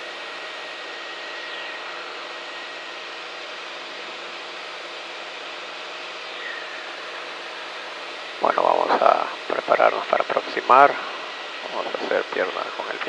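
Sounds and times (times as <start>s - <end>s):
airplane engine and propeller drone: 0.0s - 13.0s
faint steady hum: 0.0s - 13.0s.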